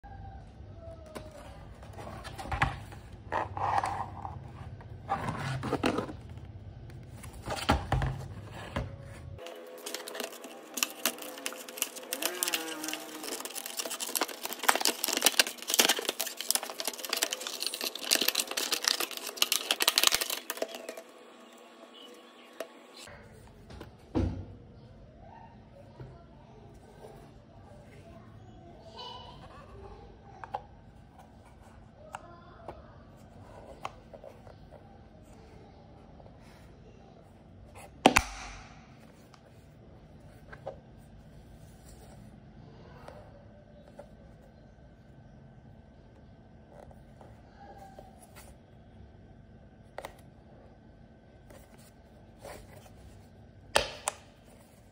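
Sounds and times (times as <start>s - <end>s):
plastic packaging crinkling: 9.4s - 22.1s.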